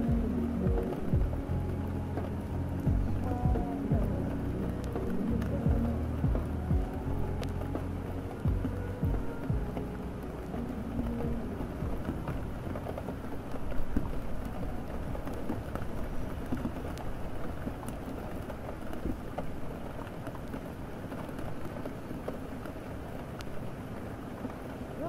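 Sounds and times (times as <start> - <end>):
low rumble: 0.0 - 18.1
steady rain falling: 0.0 - 25.0.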